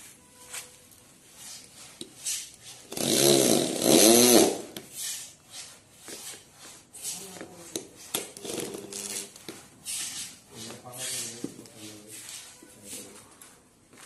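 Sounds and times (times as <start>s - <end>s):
electric drill motor whirring: 2.9s - 4.7s.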